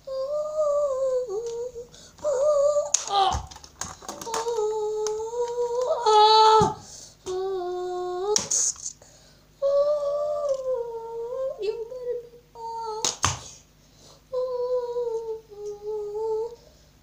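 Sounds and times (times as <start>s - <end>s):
child humming sound effects: 0.0s - 3.6s, 4.2s - 9.0s, 9.6s - 13.1s, 14.3s - 16.6s
plastic figures knocking: 3.0s - 5.2s.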